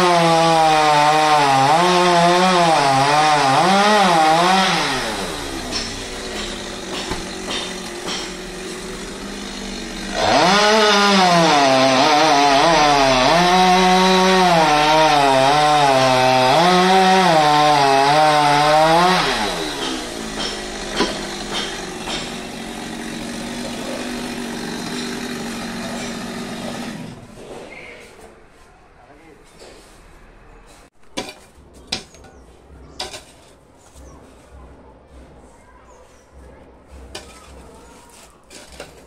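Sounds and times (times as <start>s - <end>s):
chainsaw cutting wood: 0.0s - 27.5s.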